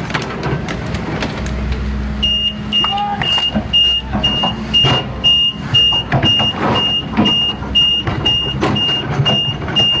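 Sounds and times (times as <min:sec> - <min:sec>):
excavator engine running: 0:00.0 - 0:10.0
excavator warning alarm beeping: 0:02.2 - 0:10.0.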